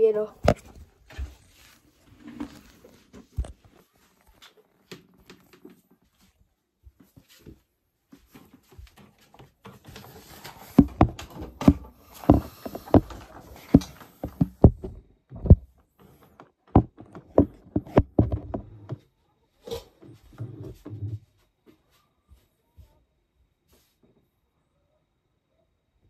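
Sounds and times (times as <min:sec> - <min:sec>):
rustling: 0:00.2 - 0:06.4
handling knocks and clunks: 0:08.3 - 0:19.0.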